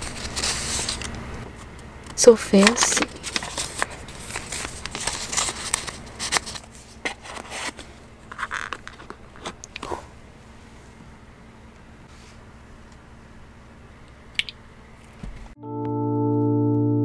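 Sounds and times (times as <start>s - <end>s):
paper and cardboard rustling: 0.0s - 1.1s, 2.5s - 10.1s.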